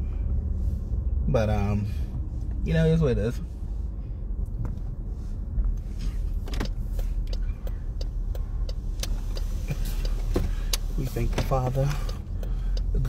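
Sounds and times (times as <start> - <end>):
car road and engine rumble: 0.0 - 13.0
faint clicks and ticks: 6.6 - 13.0.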